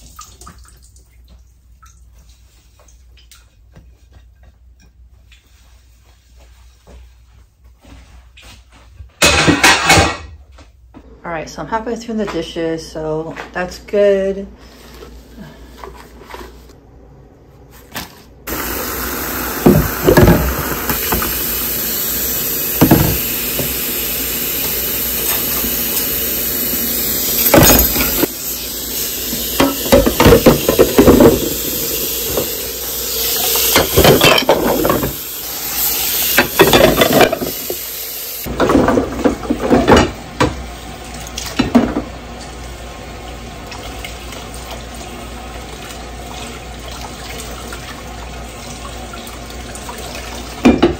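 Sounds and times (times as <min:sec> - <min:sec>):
dishes clattering: 0:09.2 - 0:10.4, 0:27.4 - 0:28.3, 0:29.6 - 0:31.6, 0:33.7 - 0:35.2, 0:36.4 - 0:37.6
tap water running into sink: 0:18.5 - 0:42.6, 0:43.6 - 0:50.9.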